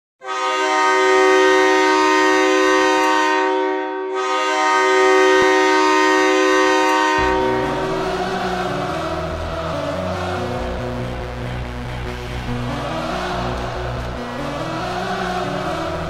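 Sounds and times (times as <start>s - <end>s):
goal horn blasts: 0.2s - 8.8s
music: 6.8s - 16.0s.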